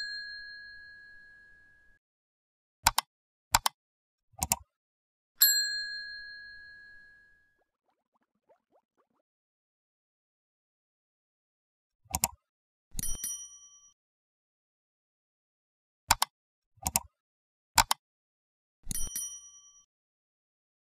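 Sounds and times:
bell-like ding: 0.0 - 2.0, 5.4 - 7.4
mouse click: 2.8 - 3.8, 4.4 - 4.6, 16.1 - 17.1, 17.8 - 18.0.

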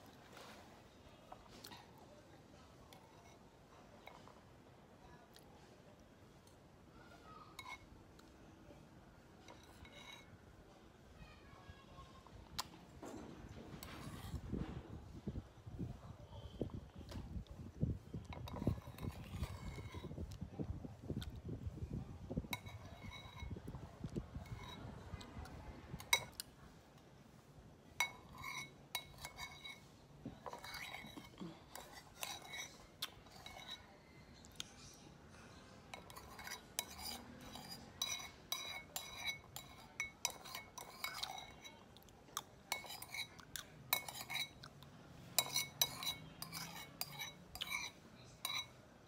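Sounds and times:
metal spoon clinking against bowl: 7.6 - 7.8, 9.4 - 10.3, 18.3 - 20.1, 22.5 - 23.6, 24.4 - 26.5, 28.0 - 34.0, 35.9 - 41.8, 42.4 - 44.8, 45.4 - 48.8.

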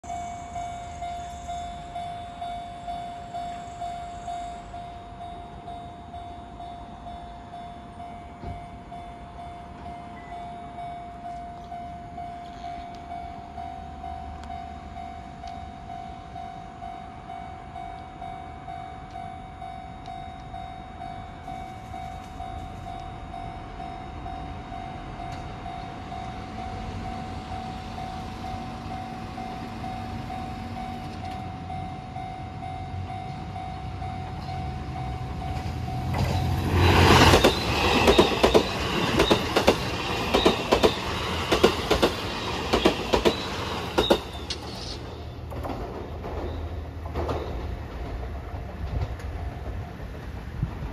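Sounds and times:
level crossing warning bell: 0.0 - 45.3
train passing loudly: 21.0 - 50.9
train wheels clacking on rail joints: 34.3 - 50.9.

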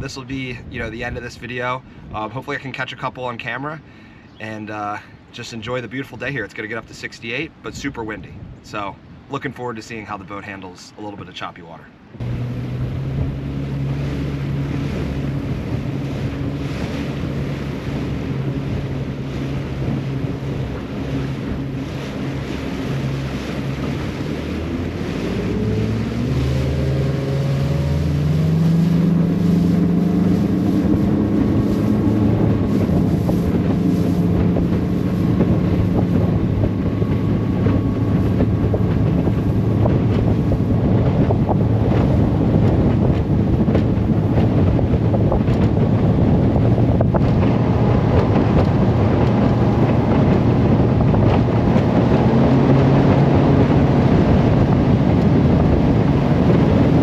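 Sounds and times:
wind buffeting microphone: 0.0 - 10.4, 12.0 - 57.0
boat on choppy water: 0.0 - 57.0
outboard motor running: 12.1 - 57.0.

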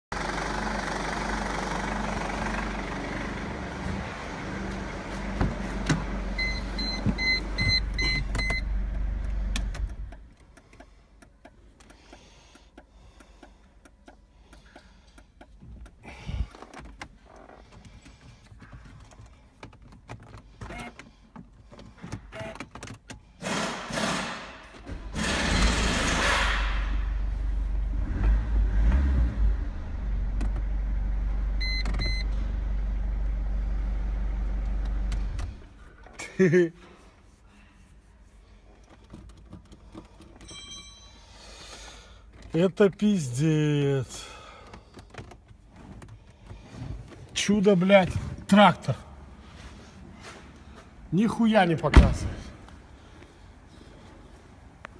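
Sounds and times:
diesel engine idling: 0.1 - 8.0
beeps: 6.4 - 8.7.

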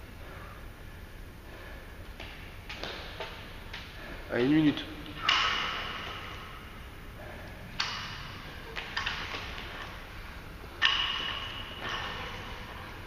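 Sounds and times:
barbell plates clanking: 10.7 - 12.8.

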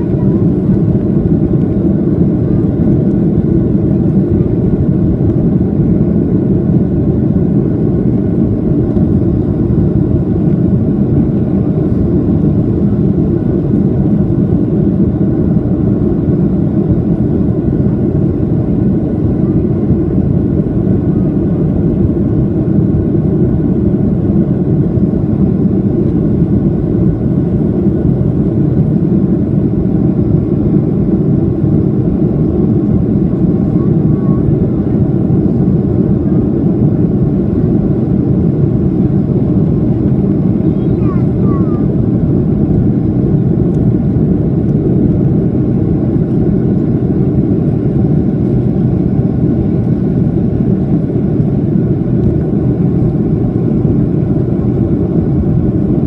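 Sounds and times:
jet engine cabin noise: 0.0 - 56.0.

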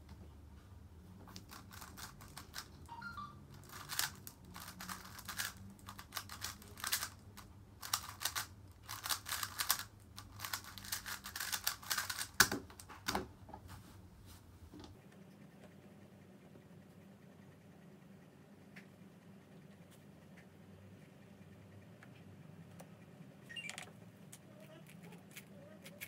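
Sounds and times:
plastic puzzle cube clicking: 3.6 - 12.9.

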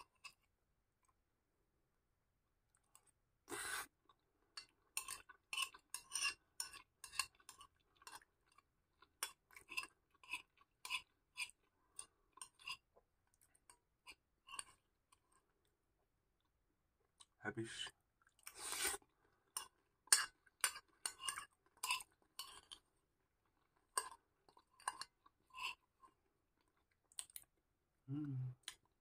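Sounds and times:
spoon scraping a glass bowl: 4.6 - 7.7.

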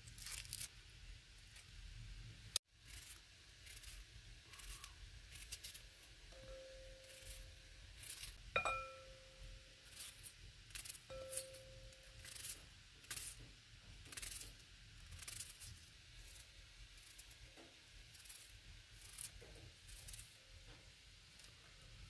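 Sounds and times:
knife cutting onion: 2.8 - 13.4, 14.0 - 17.4
clink against glass bowl: 6.4 - 7.0, 8.6 - 9.6, 11.1 - 12.0.

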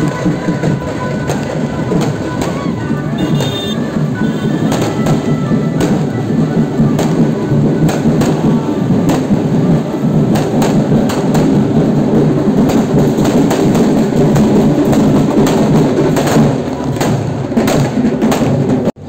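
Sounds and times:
music: 0.0 - 17.0
crowd din: 0.0 - 19.0
firecrackers banging: 0.0 - 19.0.

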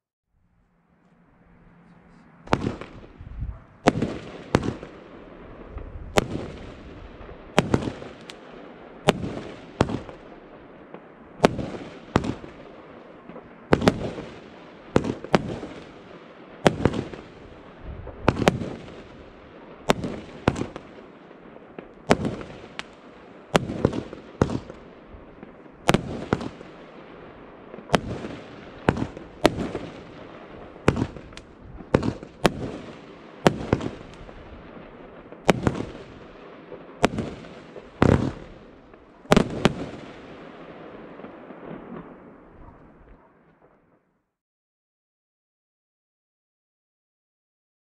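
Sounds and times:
firework shots banging with echo: 2.5 - 10.3, 10.9 - 42.8.

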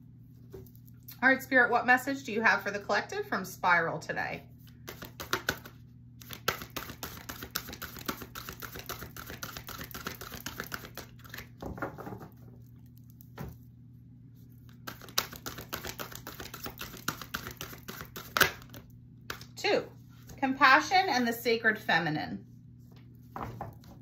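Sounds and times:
cards being shuffled: 4.6 - 11.6, 14.6 - 19.6.

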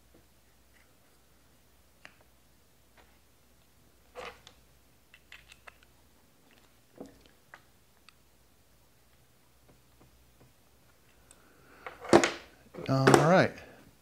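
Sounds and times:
mount base clicks and knocks: 12.0 - 13.4.

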